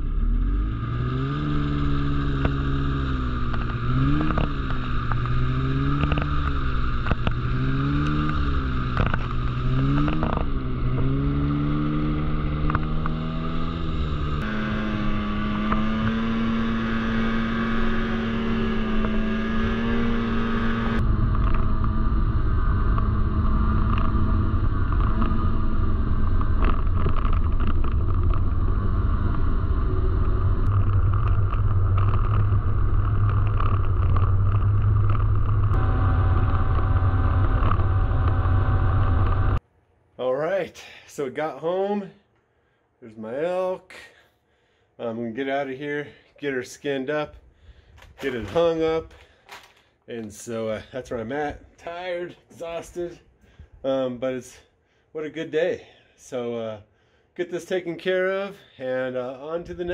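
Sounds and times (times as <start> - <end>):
snowmobile engine revving: 0.0 - 39.6.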